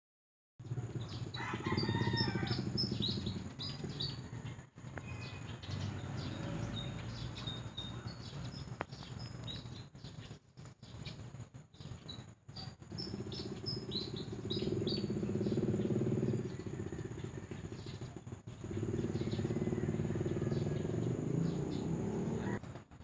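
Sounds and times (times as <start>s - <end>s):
small birds chirping: 0.6s - 23.0s
rooster-like crow: 1.3s - 3.0s, 4.1s - 5.5s, 16.2s - 18.0s, 19.0s - 22.6s.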